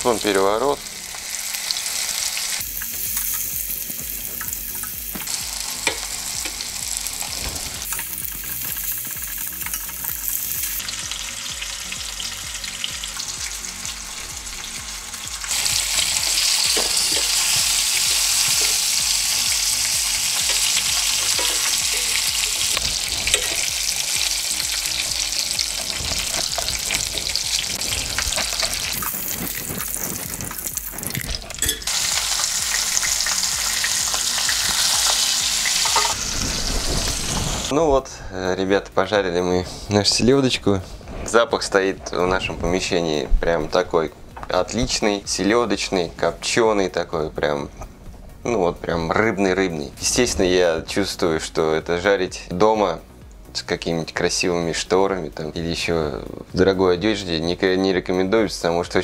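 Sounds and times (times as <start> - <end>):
fish frying in oil: 0.0 - 37.7.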